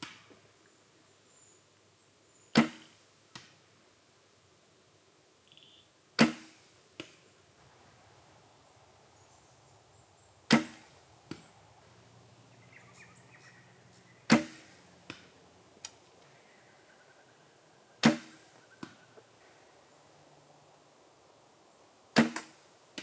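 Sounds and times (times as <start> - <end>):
arrow landing click: 10.5 - 11.4, 14.3 - 16.0, 18.0 - 19.0.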